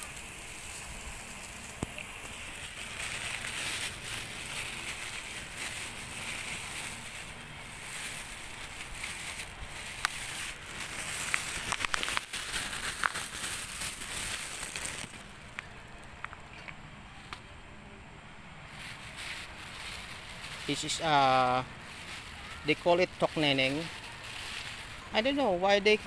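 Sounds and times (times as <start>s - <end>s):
plastic bag rustling: 0.0s - 15.5s, 18.7s - 26.0s
background hiss: 0.0s - 26.0s.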